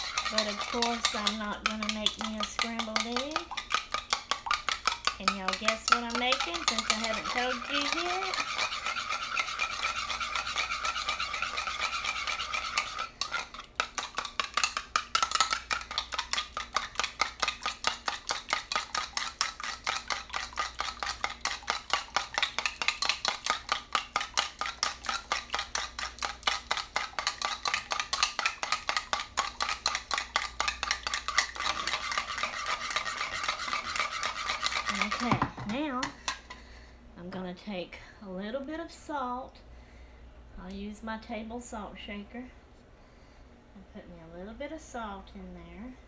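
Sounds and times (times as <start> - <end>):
utensil clicking against bowl: 0.0 - 36.4.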